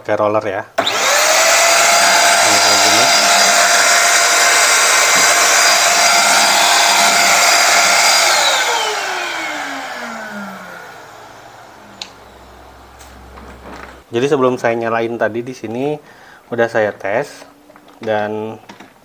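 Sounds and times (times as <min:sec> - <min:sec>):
handheld vacuum cleaner whining: 0:00.8 - 0:14.0.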